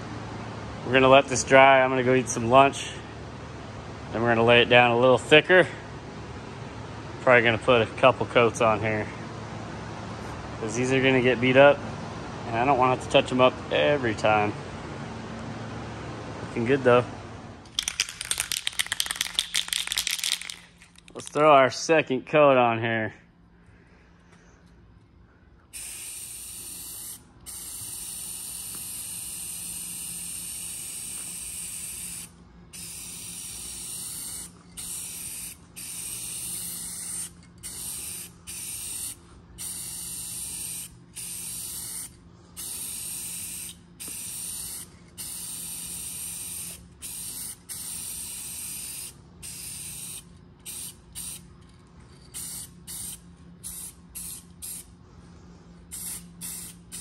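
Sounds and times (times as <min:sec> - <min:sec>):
spray paint can hissing: 0:17.7 - 0:21.0, 0:25.8 - 0:51.4, 0:52.3 - 0:54.9, 0:55.9 - 0:57.0.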